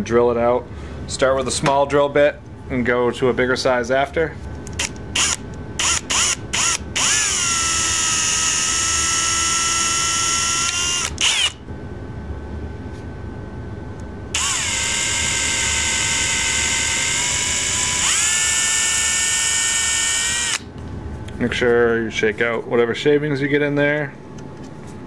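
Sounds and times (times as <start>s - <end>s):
cordless drill whining: 4.8s - 11.6s, 14.4s - 20.6s.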